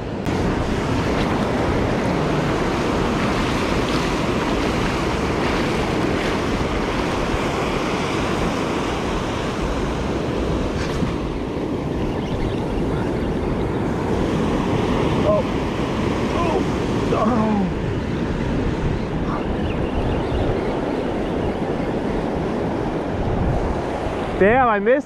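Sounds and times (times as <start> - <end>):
wind buffeting microphone: 0.0 - 24.8
ocean surf breaking: 0.0 - 25.0.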